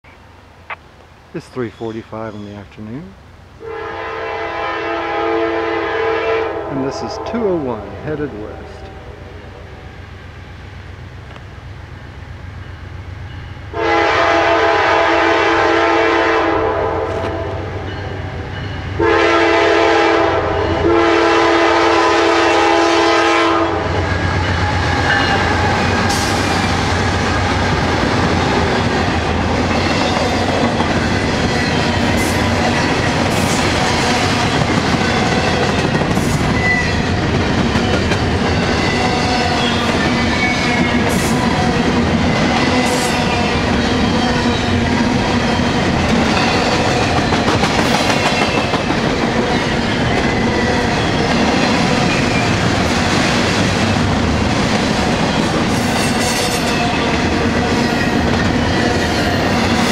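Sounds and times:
diesel locomotive engines: 0:00.0 - 0:59.9
train horn blasts: 0:03.6 - 0:07.8, 0:13.7 - 0:18.0, 0:19.0 - 0:24.2
train cars rumbling and clacking: 0:17.0 - 0:59.9.

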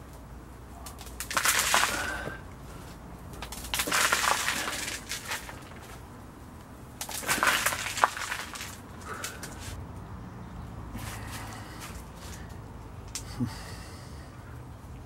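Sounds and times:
compost rustling into plastic pot: 0:03.5 - 0:06.0, 0:07.0 - 0:09.8.

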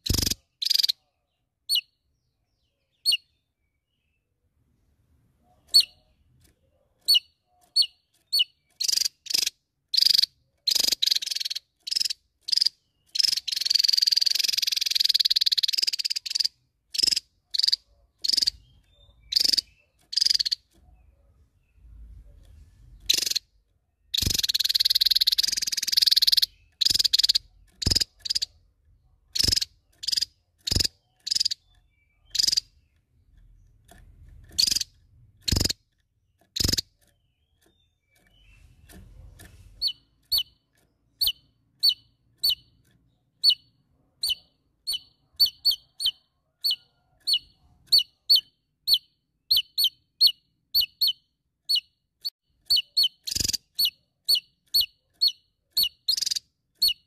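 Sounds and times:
bird calling harshly: 0:00.0 - 0:01.0, 0:05.6 - 0:06.1, 0:07.0 - 0:20.8, 0:23.0 - 0:23.5, 0:24.1 - 0:28.5, 0:29.3 - 0:32.8, 0:34.6 - 0:35.8, 0:44.2 - 0:57.0.

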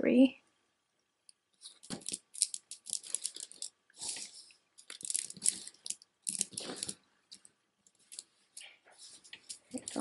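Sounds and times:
rosary beads clicking together: 0:01.8 - 0:03.8, 0:04.9 - 0:07.5.

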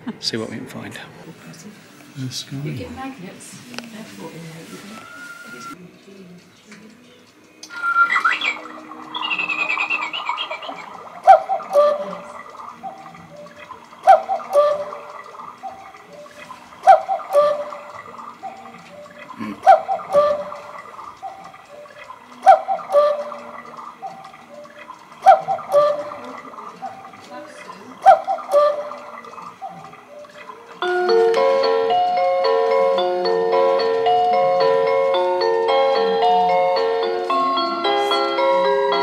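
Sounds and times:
cuckoo clock calling: 0:04.9 - 0:05.8, 0:07.2 - 0:39.0
cuckoo clock click: 0:07.5 - 0:27.1.

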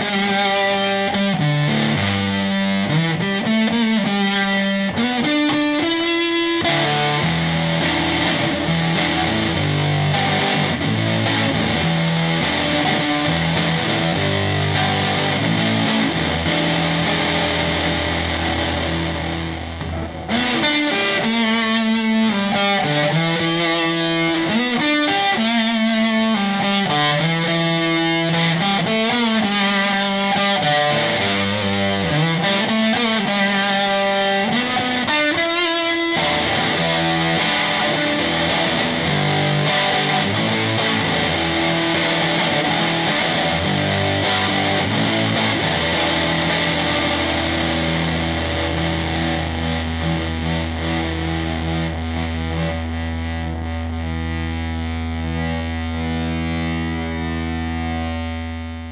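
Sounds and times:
electric guitar with fuzz: 0:00.0 - 0:58.9.

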